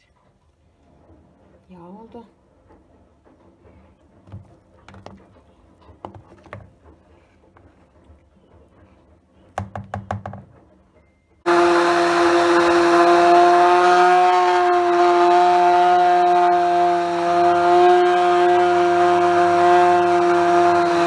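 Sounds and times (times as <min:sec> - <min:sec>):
stick blender motor whine: 0:11.5 - 0:21.0.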